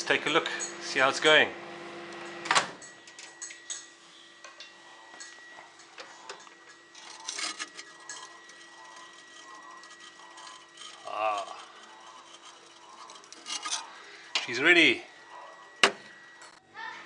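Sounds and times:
knife scraping soft brick: 7.0s - 14.0s.

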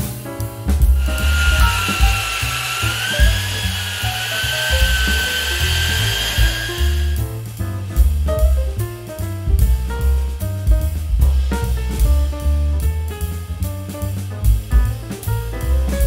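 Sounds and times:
high wavering whine: 1.0s - 7.2s.

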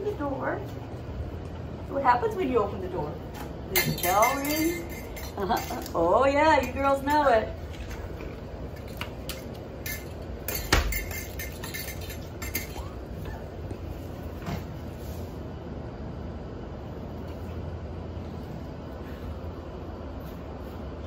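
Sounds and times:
steady low hum: 0.0s - 21.0s
clinks and knocks of bell: 3.8s - 5.9s.

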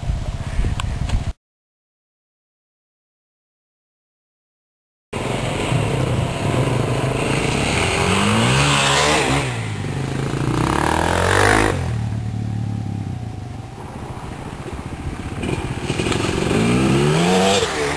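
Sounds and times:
dirt bike engines revving: 5.2s - 17.9s.

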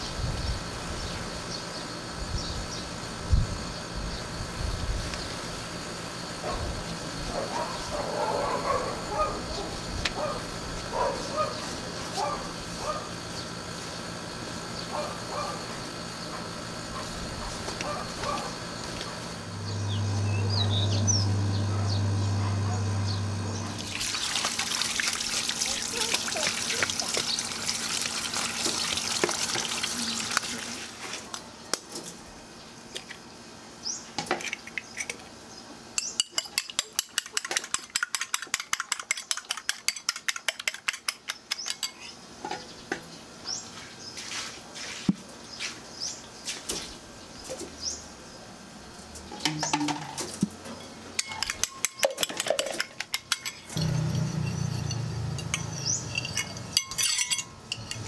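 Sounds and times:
fork beating eggs in bowl: 36.2s - 42.0s.

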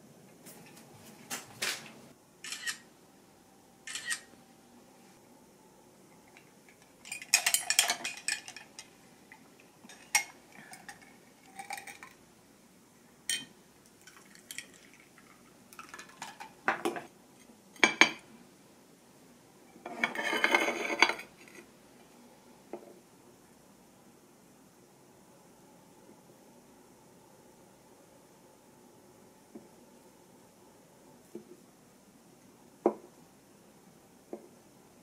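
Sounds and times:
tableware clinking: 6.3s - 8.9s, 9.9s - 12.2s, 13.3s - 14.9s, 17.8s - 18.3s, 19.7s - 21.6s
ceramic scraping rattle: 7.0s - 8.9s, 19.8s - 21.6s.

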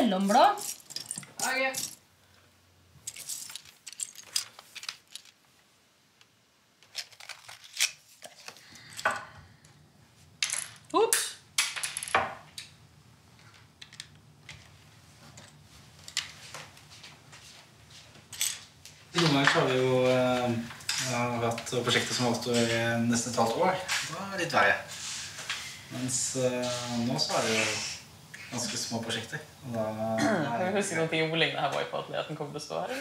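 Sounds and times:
clinks of small hard objects: 0.3s - 2.0s, 3.0s - 5.4s.

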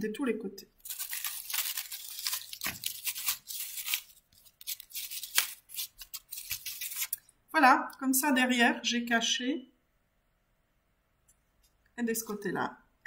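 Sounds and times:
paper rustling and scraping: 0.8s - 7.2s.

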